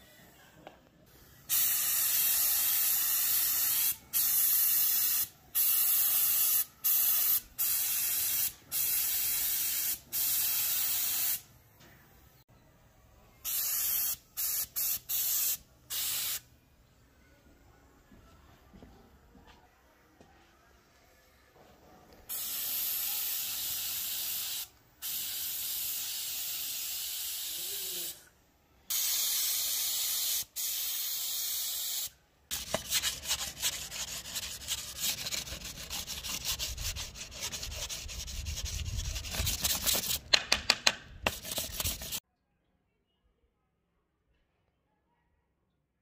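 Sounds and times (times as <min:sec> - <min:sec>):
spray paint can hissing: 0:01.4 - 0:11.4, 0:13.4 - 0:16.4, 0:22.3 - 0:28.2, 0:28.9 - 0:40.5, 0:41.2 - 0:42.2
rough rubbing and scraping: 0:32.5 - 0:40.4, 0:41.2 - 0:42.2.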